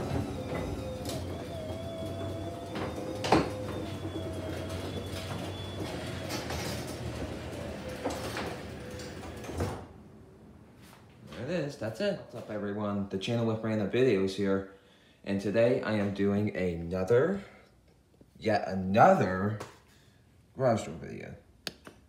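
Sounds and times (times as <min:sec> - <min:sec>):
garage door clunks: 0:00.0 - 0:10.0
garage door motor hum and whine: 0:00.0 - 0:10.9.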